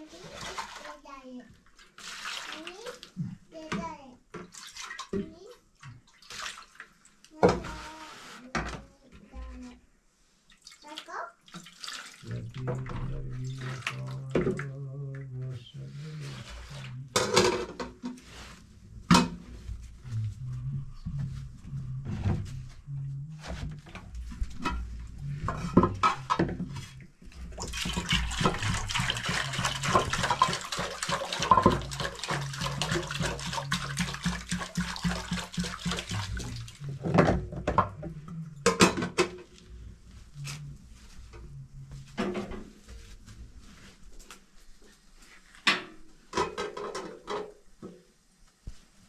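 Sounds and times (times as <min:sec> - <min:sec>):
water pouring: 0:01.7 - 0:03.2, 0:11.4 - 0:14.7, 0:24.4 - 0:37.9.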